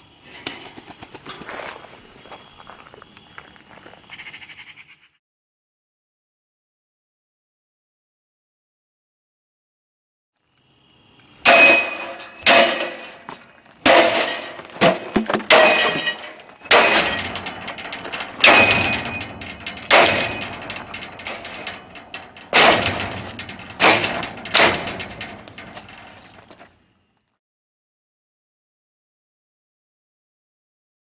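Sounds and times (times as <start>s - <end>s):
hard metal blows: 11.4s - 26.7s
wire mesh rattling clatter: 11.5s - 26.7s.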